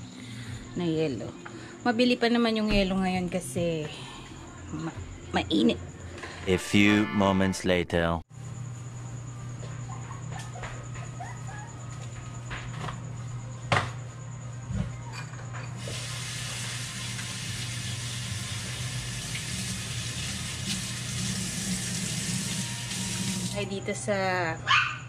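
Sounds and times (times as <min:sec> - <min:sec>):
tap water running into sink: 0:15.8 - 0:23.6.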